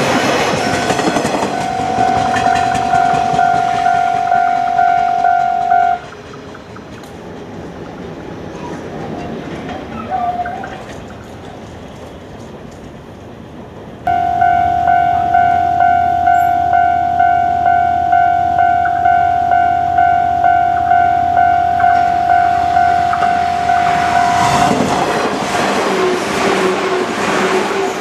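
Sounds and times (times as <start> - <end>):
electric train rolling: 0.0 - 28.0
level crossing alarm ringing: 0.6 - 6.1, 14.1 - 24.8.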